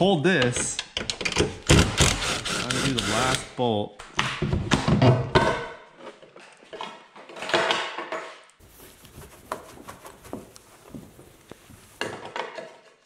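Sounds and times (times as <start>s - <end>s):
rubbing on car door: 8.6s - 12.0s.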